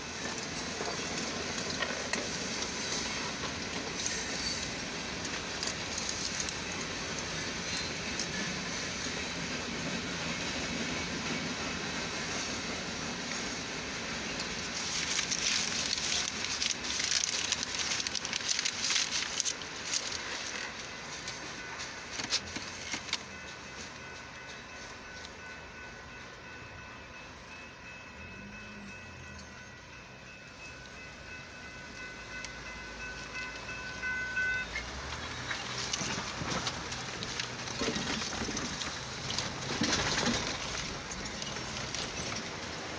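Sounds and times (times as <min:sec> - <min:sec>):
road and tyre noise in car: 0:00.0 - 0:10.7, 0:11.9 - 0:25.4, 0:32.2 - 0:42.9
train wheels hissing on rail: 0:00.0 - 0:23.4
train clicks and rattles: 0:00.0 - 0:42.9.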